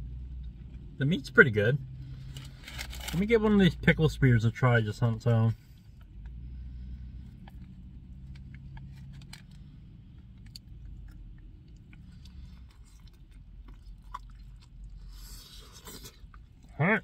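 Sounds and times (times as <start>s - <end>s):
low hum in car cabin: 0.0s - 17.0s
man chewing wet food: 7.2s - 16.8s.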